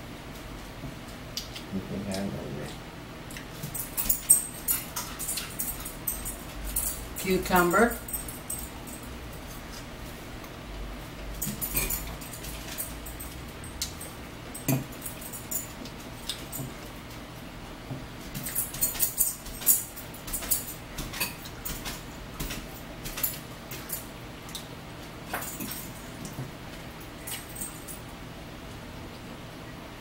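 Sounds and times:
forks clicking and scraping bowls: 3.3s - 9.8s, 11.4s - 16.9s, 18.4s - 24.7s, 25.3s - 26.4s, 27.1s - 28.0s.

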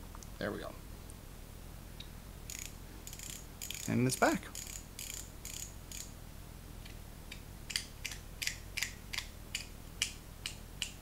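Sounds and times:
metal ratchet clicking: 2.5s - 6.1s.

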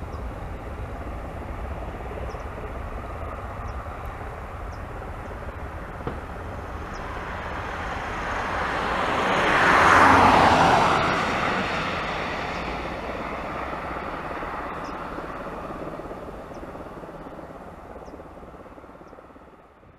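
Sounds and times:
jet aircraft roar: 0.0s - 19.9s.

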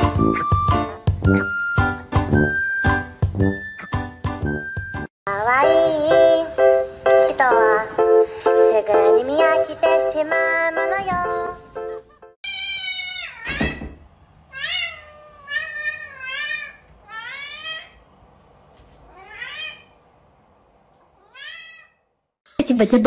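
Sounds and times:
cat meowing: 12.4s - 13.8s, 14.5s - 18.0s, 19.0s - 20.0s, 21.0s - 22.1s.

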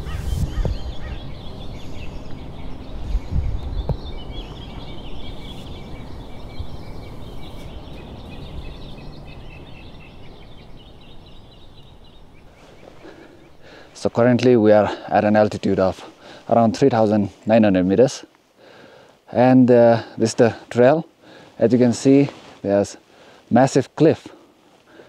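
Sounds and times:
wind rumbling on microphone: 0.0s - 12.9s
birds chirping: 0.0s - 25.0s.

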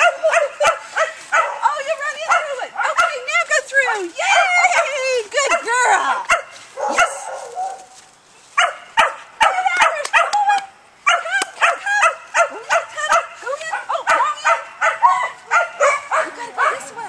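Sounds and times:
puppy yipping and barking: 11.1s - 17.0s.

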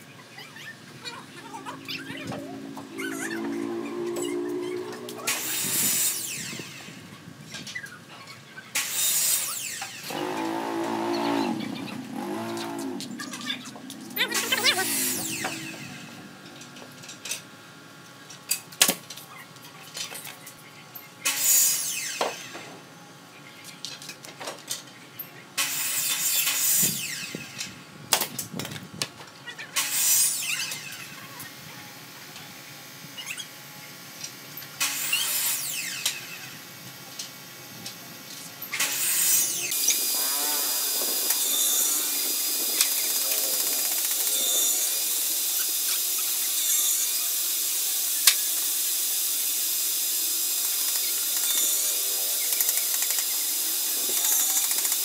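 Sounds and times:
power tool spinning: 1.2s - 7.0s, 8.8s - 17.4s, 38.7s - 55.0s.

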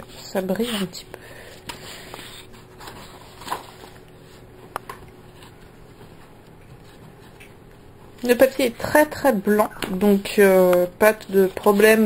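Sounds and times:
paper pages rustling: 1.4s - 9.1s, 11.0s - 12.0s.

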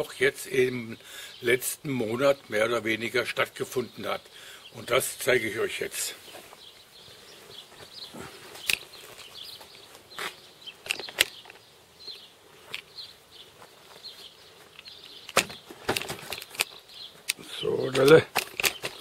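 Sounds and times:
camera handling clicks and knocks: 10.8s - 11.6s, 14.7s - 19.0s.

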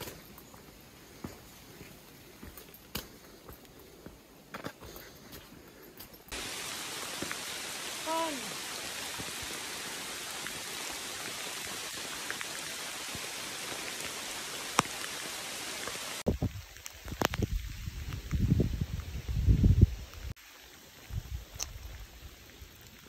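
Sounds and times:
rain hissing: 6.3s - 23.0s.

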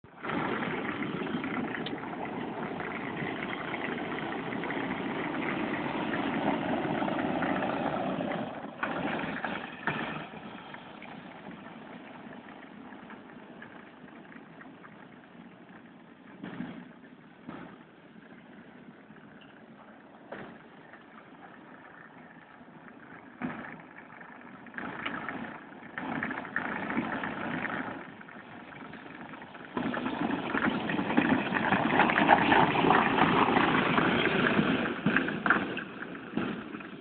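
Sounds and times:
toy truck motors rolling: 20.5s - 37.0s.

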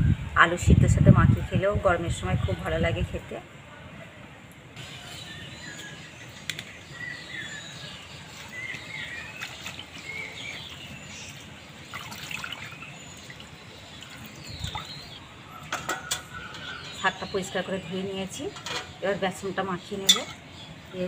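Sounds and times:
water sloshing in metal bowl: 8.3s - 17.2s, 19.9s - 20.5s.

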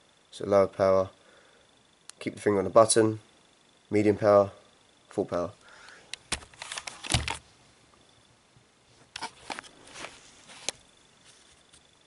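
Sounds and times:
handling clicks and rustles: 6.1s - 7.5s.

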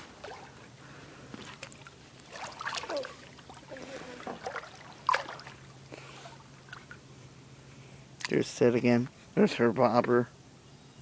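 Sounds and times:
water splashing and sloshing: 0.0s - 7.1s.

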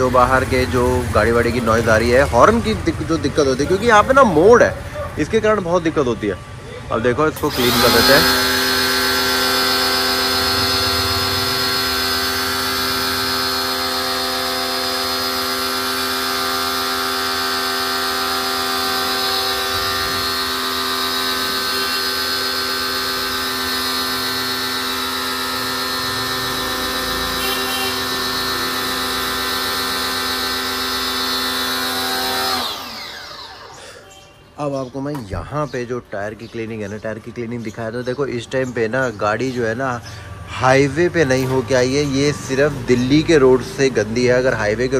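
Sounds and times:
pressure washer motor whine: 0.0s - 34.4s, 40.1s - 44.9s
water jet hissing: 7.4s - 33.1s.

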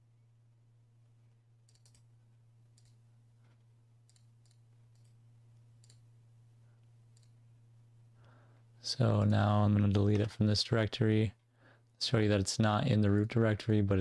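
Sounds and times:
computer mouse clicks: 1.6s - 2.1s, 2.7s - 5.2s, 5.8s - 6.1s, 7.1s - 7.4s.

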